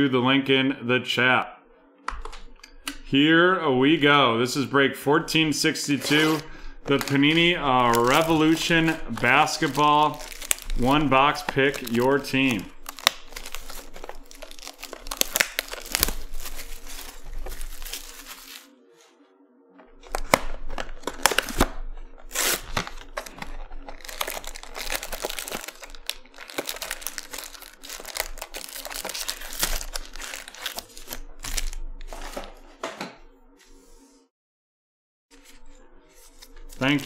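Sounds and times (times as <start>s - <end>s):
plastic wrap crinkling and tearing: 5.9s - 18.7s, 20.0s - 32.5s, 36.2s - 37.0s.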